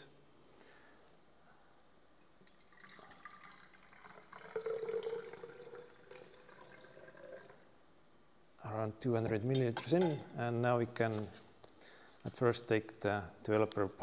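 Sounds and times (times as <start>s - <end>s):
water pouring into a cylinder: 2.4s - 7.7s.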